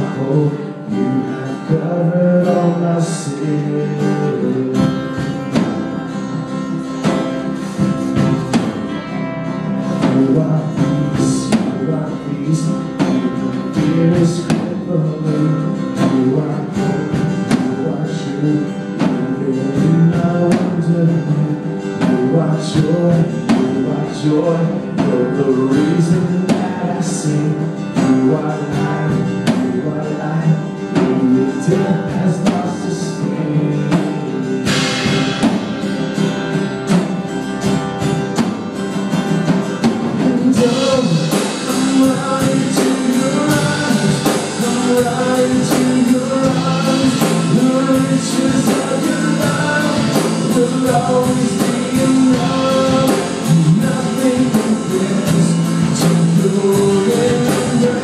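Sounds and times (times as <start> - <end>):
person singing lead vocal: 0.0 - 37.3, 39.6 - 58.0
band playing guitars bass and drums: 0.0 - 58.0
cymbals: 34.7 - 38.0.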